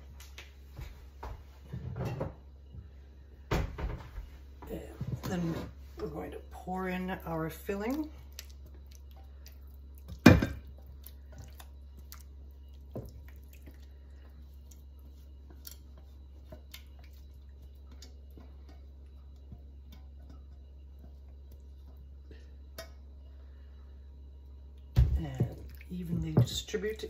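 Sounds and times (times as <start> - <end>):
thick filling plopping and dripping: 6.8 - 23.0, 24.9 - 27.0
small wet clicks: 7.8 - 10.2.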